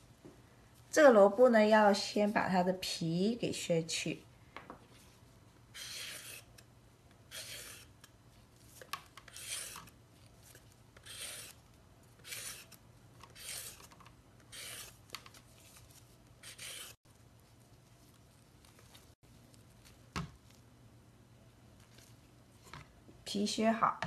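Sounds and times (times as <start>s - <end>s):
vegetable peeler scraping radish: 5.7s - 6.6s, 7.3s - 8.1s, 8.7s - 15.8s, 16.4s - 17.0s.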